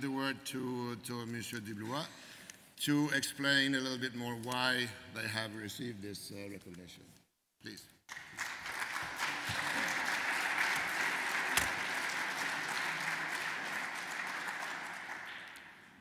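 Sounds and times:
audience applauding: 0:08.1 - 0:16.0.

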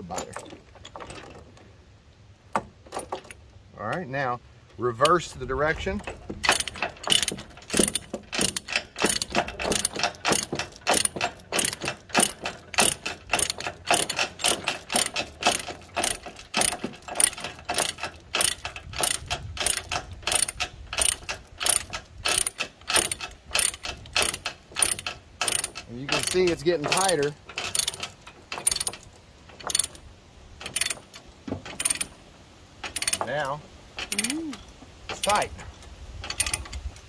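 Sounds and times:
ratchet pawl clicking: 0:06.4 - 0:29.0, 0:29.6 - 0:30.0, 0:30.6 - 0:32.1, 0:32.8 - 0:33.3, 0:34.0 - 0:34.4, 0:36.2 - 0:36.9.

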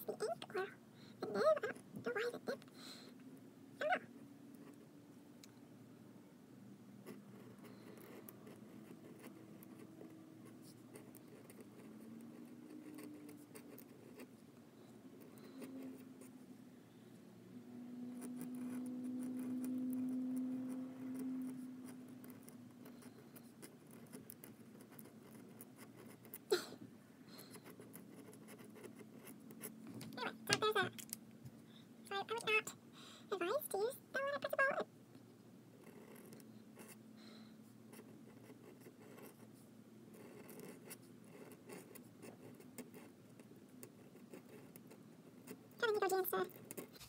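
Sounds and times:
low steady hum: 0:00.0 - 0:47.0
pen nib scratching on paper: 0:07.0 - 0:14.4, 0:15.1 - 0:16.3, 0:18.0 - 0:26.5, 0:27.3 - 0:29.8, 0:35.8 - 0:37.0, 0:37.8 - 0:47.0.

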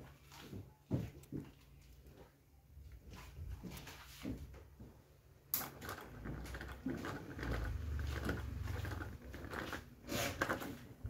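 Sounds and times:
fan clicking and crackling: 0:05.5 - 0:11.0
fan motor hum: 0:05.6 - 0:11.0.

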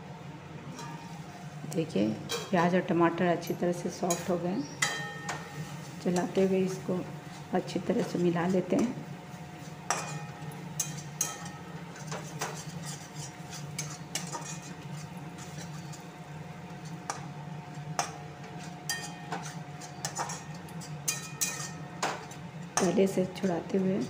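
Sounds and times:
steady low hum: 0:00.0 - 0:24.0
metal spatula scraping metal pan: 0:10.8 - 0:16.1.

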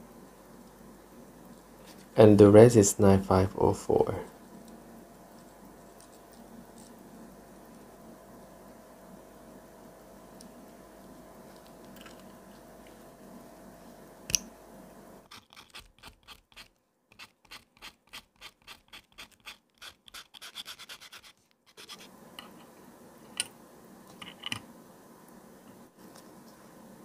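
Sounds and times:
short scratching strokes: 0:15.3 - 0:22.1.

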